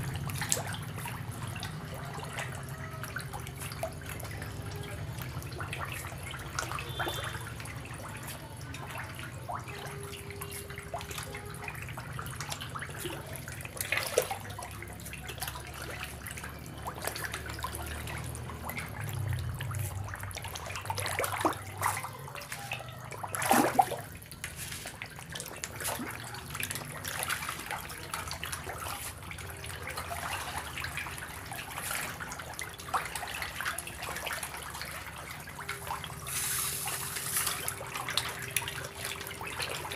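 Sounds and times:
low steady rumble: 0.0s - 22.4s
fish splashing at water surface: 0.0s - 39.9s.

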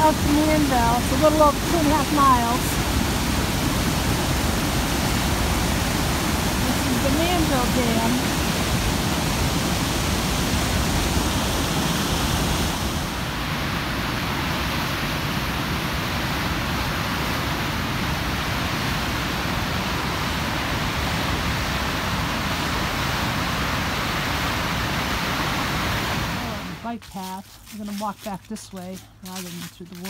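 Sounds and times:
rush of falling water: 0.0s - 28.6s.

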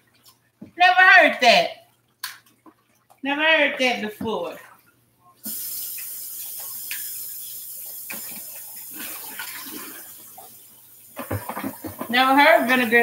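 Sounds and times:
faucet water running into sink: 5.4s - 13.0s.

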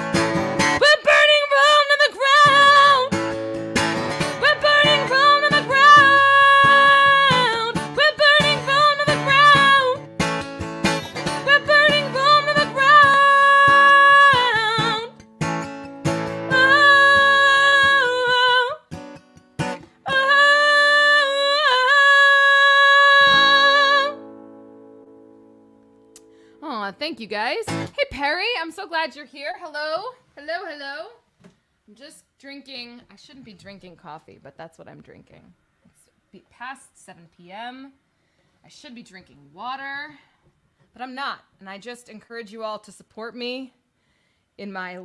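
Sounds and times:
strummed acoustic guitar: 0.0s - 26.9s, 27.6s - 28.0s
woman singing: 0.6s - 3.4s, 4.0s - 10.1s, 11.0s - 15.2s, 16.2s - 18.9s, 19.8s - 24.2s.

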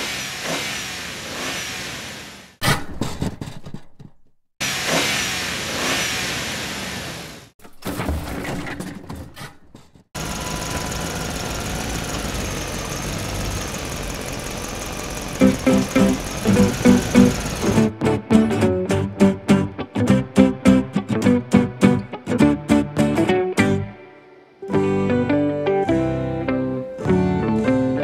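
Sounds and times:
engine revving: 0.0s - 2.6s, 4.6s - 7.5s, 10.2s - 17.9s
background music: 15.4s - 28.0s.

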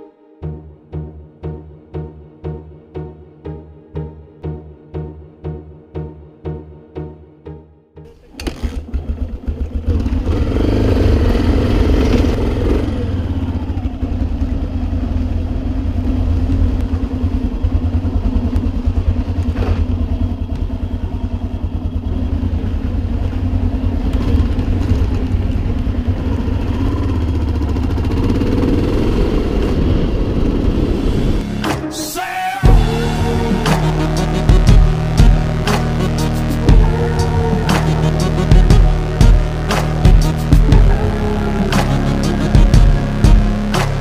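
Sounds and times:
motorcycle engine running: 8.1s - 31.7s, 32.6s - 44.0s.

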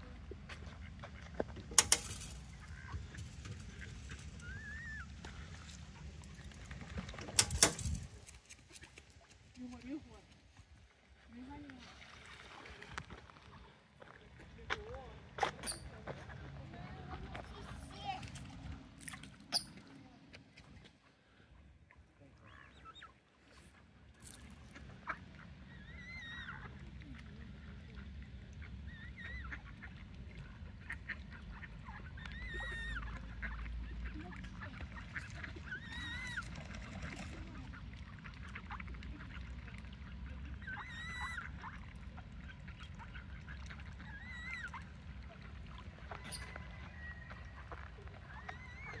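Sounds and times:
ducks calling: 28.0s - 37.2s, 40.5s - 49.0s.

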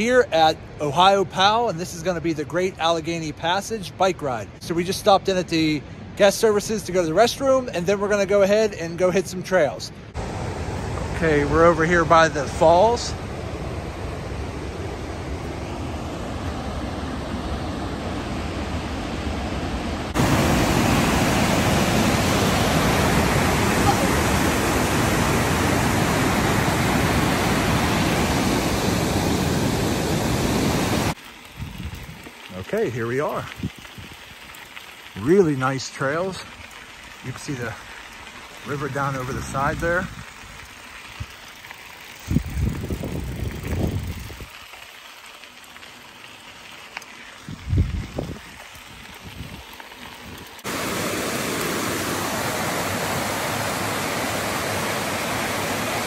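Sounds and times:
waterfall rushing: 10.1s - 31.2s, 50.6s - 56.0s
wind buffeting microphone: 20.0s - 32.3s, 42.2s - 44.5s, 47.4s - 50.6s
tyres rolling on gravel: 31.1s - 50.8s.

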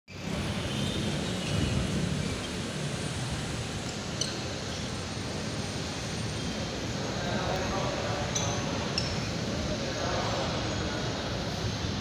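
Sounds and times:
rumbling of light-rail station: 0.1s - 12.0s.

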